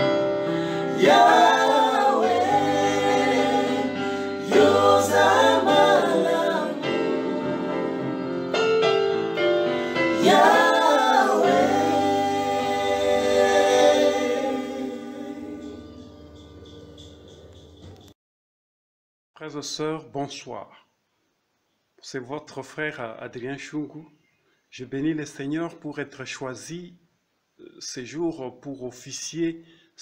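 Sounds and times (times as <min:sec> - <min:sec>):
vocal group singing gospel: 0:00.0 - 0:08.6, 0:10.0 - 0:16.0.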